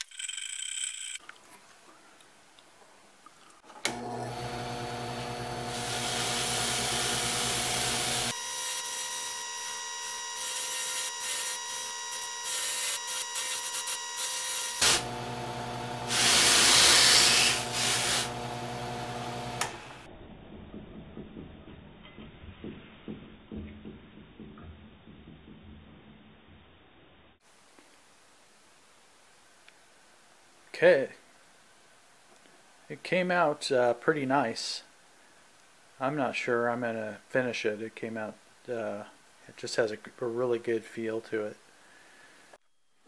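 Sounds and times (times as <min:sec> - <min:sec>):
drill press motor humming: 0:03.7 - 0:20.1
wood rubbing and scraping on disc: 0:16.0 - 0:18.4.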